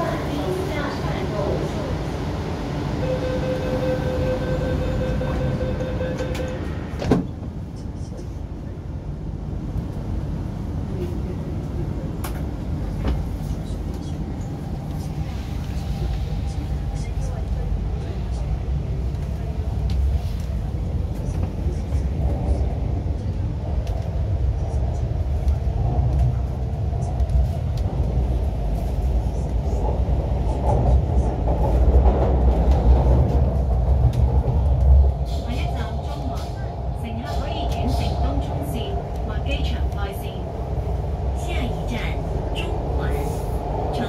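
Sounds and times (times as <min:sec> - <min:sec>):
metro train rumble: 0:00.0 - 0:44.0.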